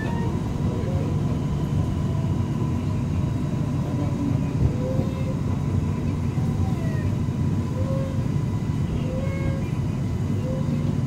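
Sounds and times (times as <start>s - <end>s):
train car rumble: 0.0s - 11.0s.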